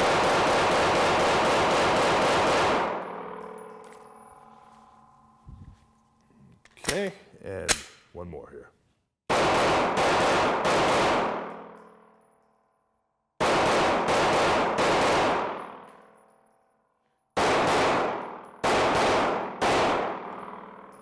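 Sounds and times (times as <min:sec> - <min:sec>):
pistol shots with ringing decay: 0:00.0 - 0:03.4, 0:09.3 - 0:11.8, 0:13.4 - 0:15.9, 0:17.4 - 0:21.0.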